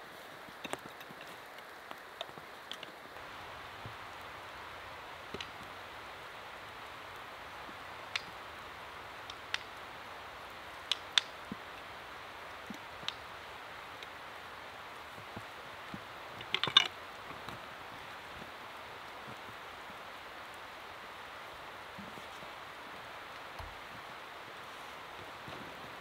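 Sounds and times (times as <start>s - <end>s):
soft outdoor hiss: 0.0s - 26.0s
wooden sticks clicking and knocking: 0.5s - 20.7s.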